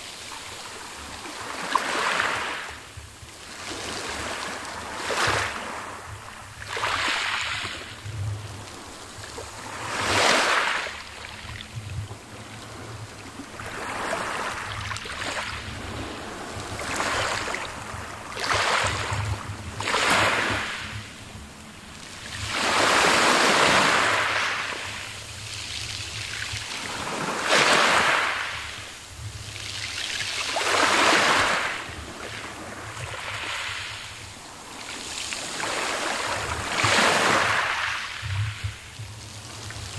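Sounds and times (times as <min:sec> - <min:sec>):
waves washing up pebble beach: 0:01.4 - 0:02.7, 0:06.7 - 0:07.7, 0:08.9 - 0:11.1, 0:13.6 - 0:19.1, 0:19.8 - 0:20.9, 0:22.4 - 0:28.8, 0:29.5 - 0:38.7.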